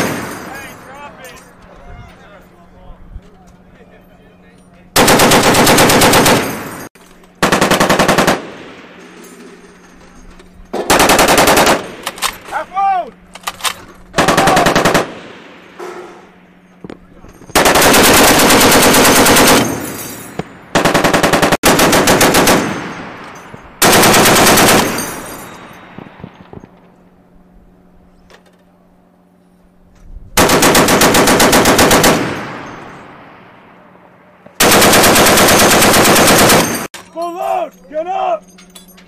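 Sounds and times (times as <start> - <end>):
machine gun firing bursts: 5.0 - 9.0, 10.7 - 12.4, 14.1 - 15.8, 17.5 - 19.9, 20.7 - 23.2, 23.8 - 25.3, 30.4 - 33.0, 34.6 - 36.9.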